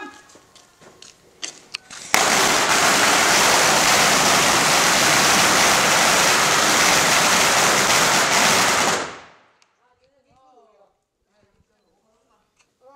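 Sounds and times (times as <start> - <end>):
firecrackers crackling: 1.9 - 9.6.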